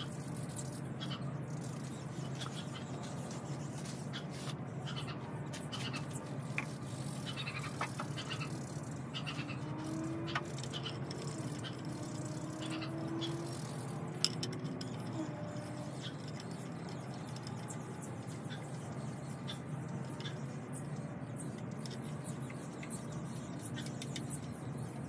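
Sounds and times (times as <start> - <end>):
low background hum: 0.0 - 25.0.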